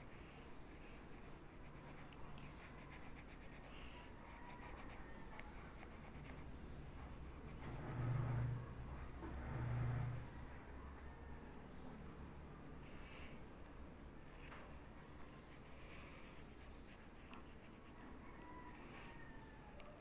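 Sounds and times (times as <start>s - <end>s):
pencil rubbing on paper: 0.0s - 6.5s, 7.2s - 8.6s, 15.4s - 18.0s
pencil scratching on paper: 0.0s - 8.6s, 15.4s - 18.0s.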